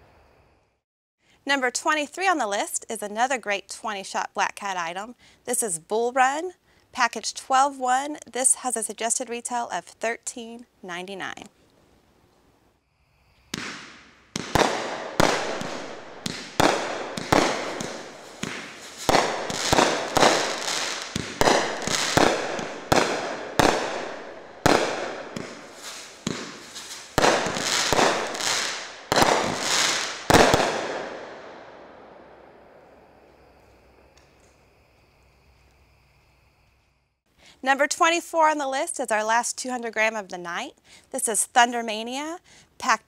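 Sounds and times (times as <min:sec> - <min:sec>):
firework reports: 0:13.6 - 0:31.3.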